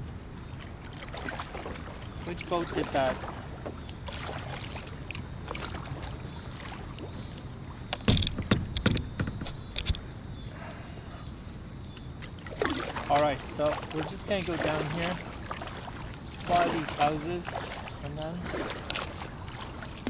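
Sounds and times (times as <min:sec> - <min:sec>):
wind: 0:00.0 - 0:20.0
rushing water: 0:00.5 - 0:07.4, 0:12.4 - 0:20.0
water slapping against kayak hull: 0:00.5 - 0:10.0, 0:12.2 - 0:20.0
sharp slaps and knocks on hull: 0:07.0 - 0:10.0.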